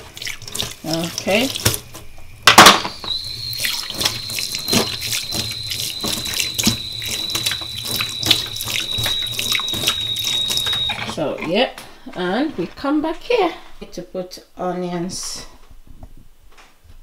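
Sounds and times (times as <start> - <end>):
tap water splashing into steel sink: 0.0 - 11.6
thin high whistle: 2.4 - 11.3.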